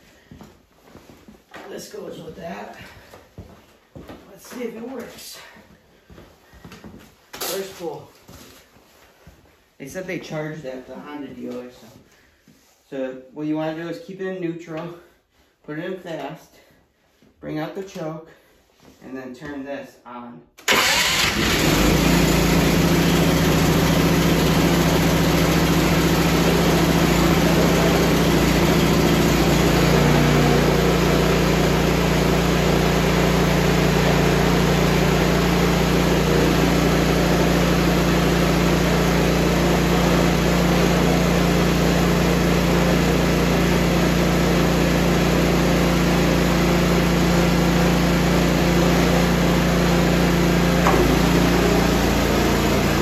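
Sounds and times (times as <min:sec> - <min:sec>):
snowblower engine running: 0:20.7 - 0:53.0.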